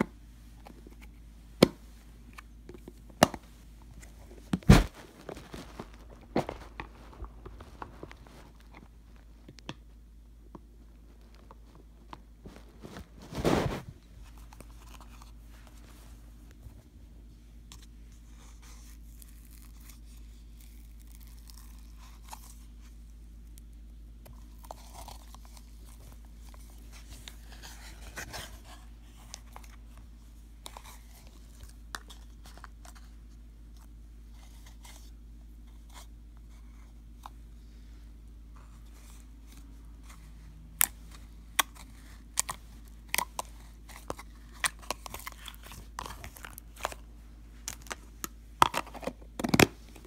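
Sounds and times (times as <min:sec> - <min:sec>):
slime crackling and popping: 0:19.2 - 0:22.5.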